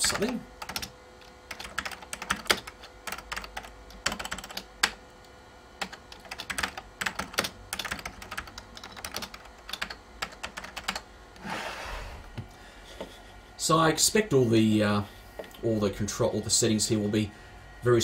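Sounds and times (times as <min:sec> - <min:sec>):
keyboard typing clicks: 0:05.8 - 0:11.0.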